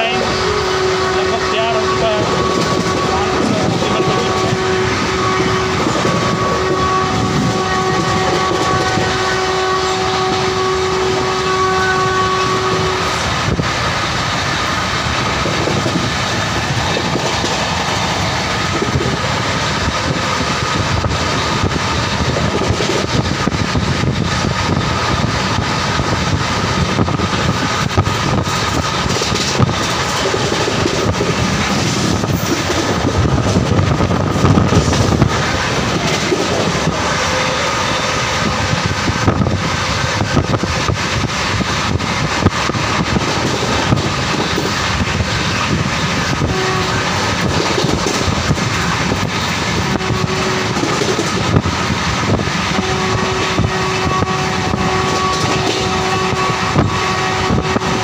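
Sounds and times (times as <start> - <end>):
train horn: 0.0 - 13.7, 24.7 - 40.9, 45.6 - 48.4, 49.2 - 51.7, 52.3 - 58.0
train rumble and wheel clatter: 0.0 - 58.0.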